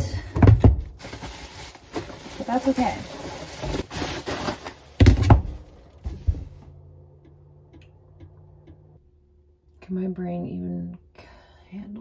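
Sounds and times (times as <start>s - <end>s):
bubble wrap crinkling: 1.0s - 6.0s.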